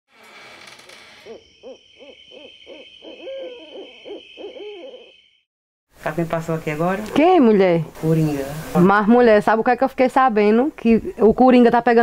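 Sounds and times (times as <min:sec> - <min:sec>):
steady high chirr: 0:01.1 - 0:05.5
bird hooting: 0:01.2 - 0:05.4.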